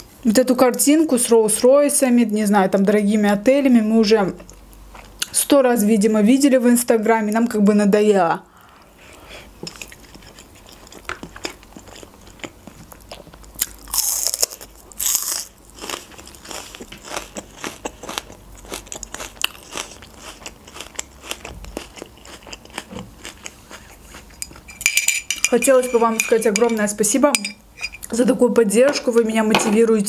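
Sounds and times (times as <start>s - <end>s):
person chewing food: 9.1s - 24.8s.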